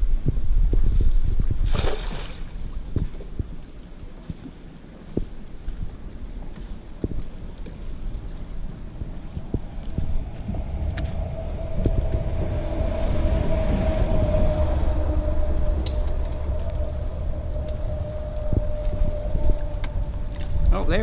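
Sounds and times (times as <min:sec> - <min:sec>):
wind noise: 0:00.0 - 0:21.0
engine hum: 0:07.5 - 0:21.0.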